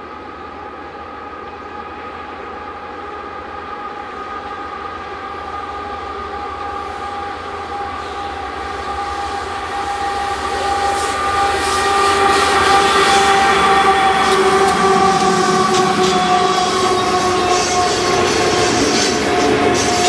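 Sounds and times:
diesel locomotives droning: 0:00.0 - 0:20.0
train wheels clicking and rattling: 0:10.9 - 0:20.0.

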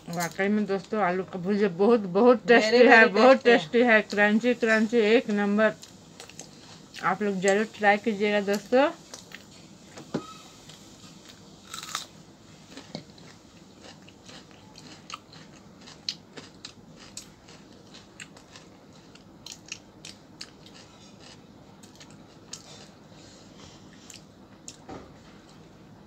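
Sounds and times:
chewing crunchy snack: 0:05.8 - 0:07.0, 0:11.1 - 0:23.0.

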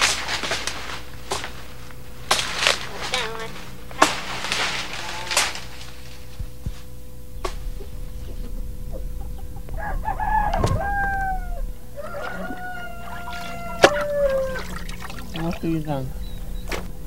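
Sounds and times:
rooster crowing: 0:07.5 - 0:17.0.

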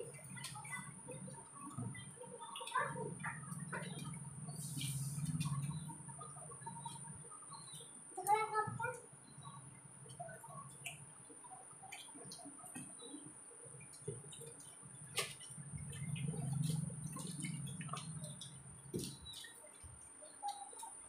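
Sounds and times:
low hum: 0:00.0 - 0:08.0, 0:15.5 - 0:19.3.

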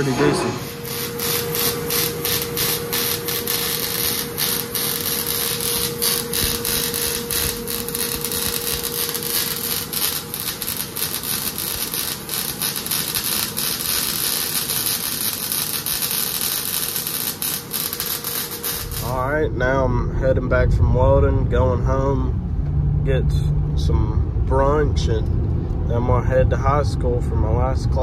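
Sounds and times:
welding crackling hiss: 0:00.0 - 0:19.4
mid-pitched machine whine: 0:00.0 - 0:28.0.

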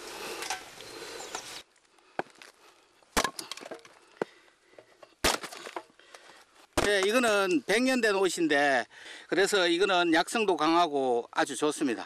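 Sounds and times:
steady hiss: 0:00.0 - 0:01.8
hatchet chopping wood: 0:03.2 - 0:03.9, 0:05.2 - 0:05.9, 0:06.8 - 0:07.2
wood splintering cracks: 0:05.2 - 0:06.2.

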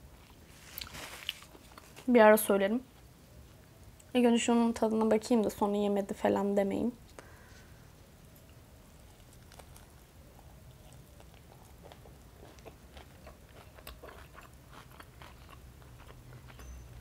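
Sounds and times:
mouth chewing with wet clicks: 0:08.3 - 0:16.6.

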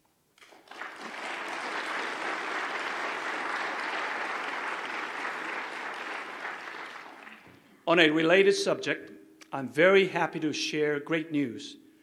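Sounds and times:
audience applauding: 0:00.4 - 0:07.7.

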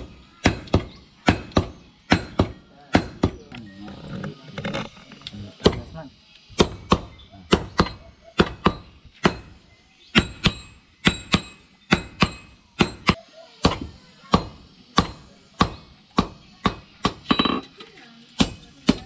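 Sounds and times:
hammer beating metal on anvil: 0:10.1 - 0:17.6.

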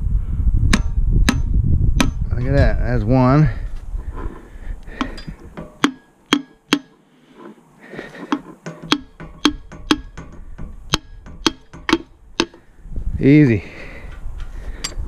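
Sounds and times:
hammer tapping on metal: 0:00.7 - 0:02.2, 0:05.0 - 0:07.0, 0:08.3 - 0:12.6.

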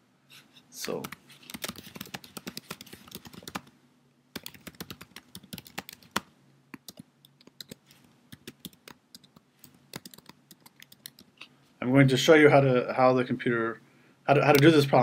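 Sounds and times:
keyboard typing: 0:00.8 - 0:03.7, 0:04.4 - 0:11.4.

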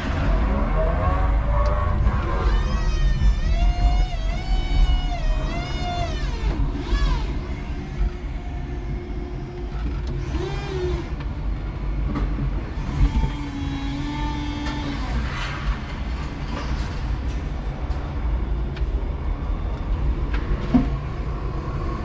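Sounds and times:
electric forklift motor whining: 0:01.4 - 0:11.6, 0:12.6 - 0:15.6.

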